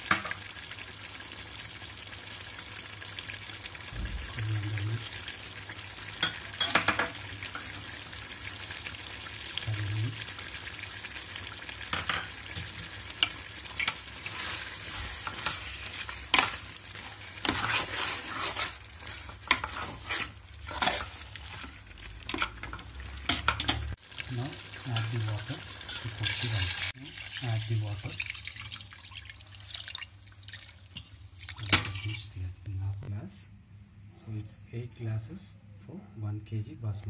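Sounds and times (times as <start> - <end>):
gravy sizzling: 0.0 - 32.9
metal ladle scraping a pot: 13.7 - 23.8.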